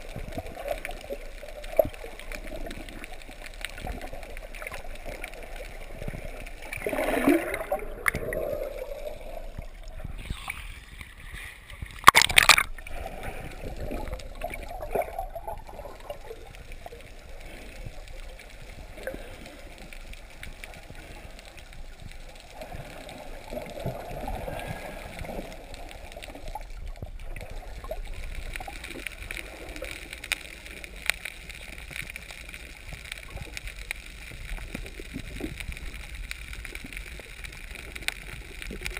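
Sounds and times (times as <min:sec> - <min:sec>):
muffled underwater bubbles: 0:00.0 - 0:38.9.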